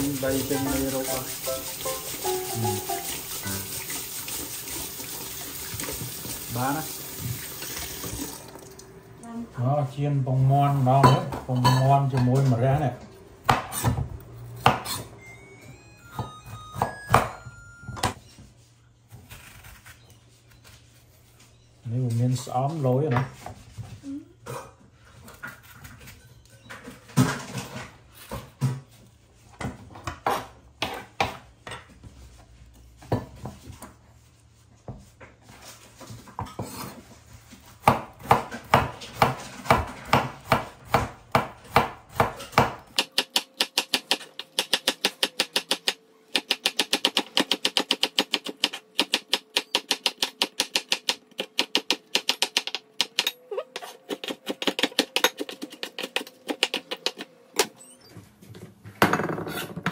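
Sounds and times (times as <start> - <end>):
knife chopping on wooden board: 13.5 - 14.0, 37.8 - 57.3
spoon scraping seeds: 53.7 - 57.3.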